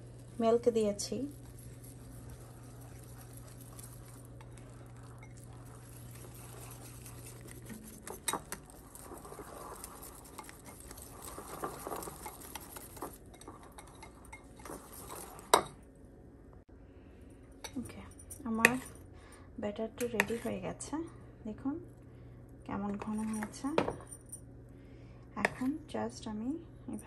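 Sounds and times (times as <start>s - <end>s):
whisk scraping a bowl: 0.0s - 15.7s
steady low hum: 0.0s - 27.0s.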